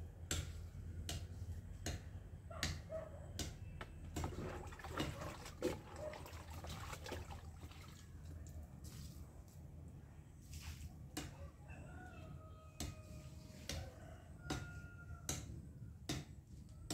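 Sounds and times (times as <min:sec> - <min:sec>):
ladle knocking against bucket: 0:03.7 - 0:07.3
ladle sloshing liquid in bucket: 0:03.8 - 0:08.6.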